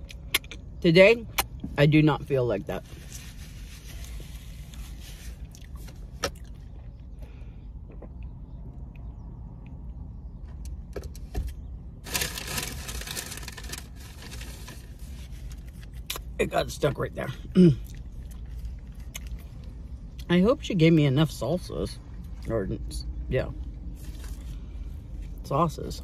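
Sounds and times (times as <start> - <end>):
low steady hum: 0.0 - 26.0
rustling: 2.8 - 6.0, 12.0 - 16.0.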